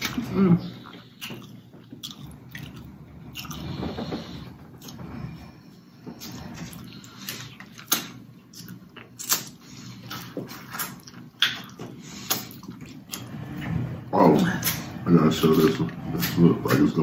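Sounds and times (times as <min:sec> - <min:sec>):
chewing: 0:00.0 - 0:17.0.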